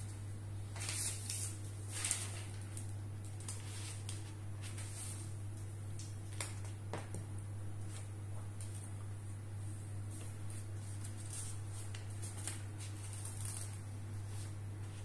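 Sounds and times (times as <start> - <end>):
steady low hum: 0.0 - 15.0
notebook pages rustling: 0.7 - 5.4, 10.1 - 15.0.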